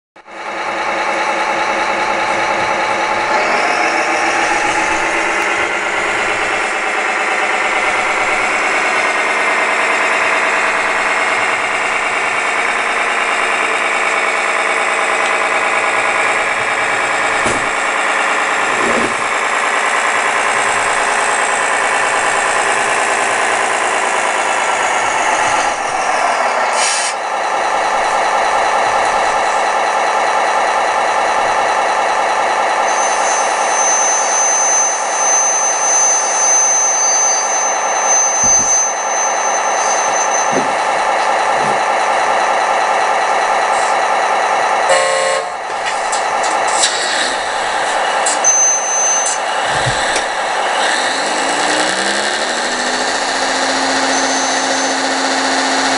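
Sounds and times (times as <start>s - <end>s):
diesel truck engine: 0.2s - 55.9s
air brake hiss: 26.7s - 27.2s.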